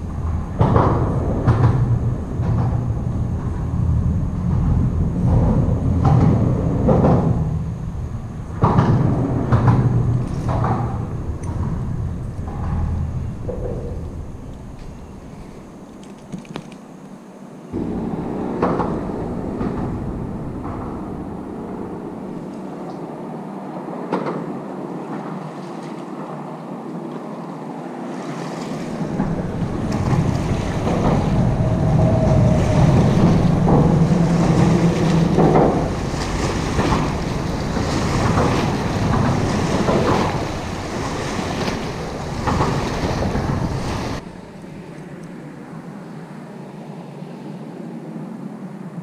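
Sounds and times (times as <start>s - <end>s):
wind rumbling on microphone: 0.0s - 49.0s
waves splashing against concrete: 27.9s - 45.2s.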